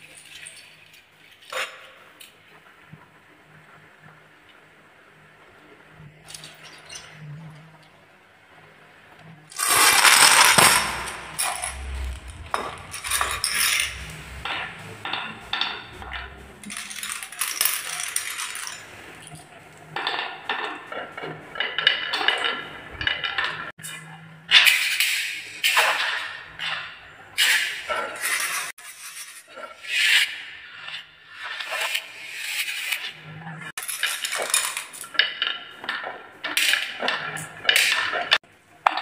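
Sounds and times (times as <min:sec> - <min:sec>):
marbles clattering on wooden run: 0:09.5 - 0:14.0, 0:16.6 - 0:19.2, 0:33.8 - 0:35.3.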